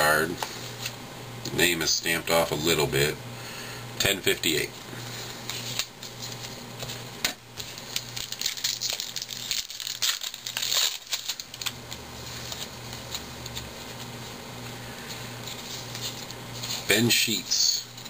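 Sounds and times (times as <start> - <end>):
cards rustling: 5.1 - 7.0, 7.6 - 18.0
foil wrapper tearing and crinkling: 7.6 - 14.0.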